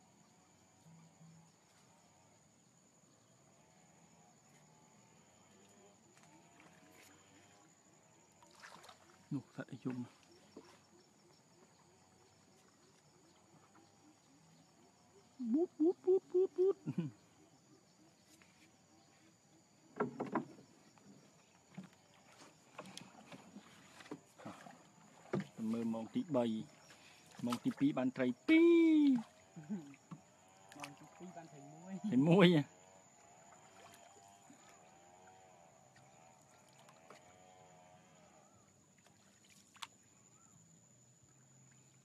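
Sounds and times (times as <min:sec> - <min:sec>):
water splashes: 0:08.2 - 0:14.1, 0:20.7 - 0:37.8, 0:38.9 - 0:40.2
wooden boat knocks: 0:19.9 - 0:20.7.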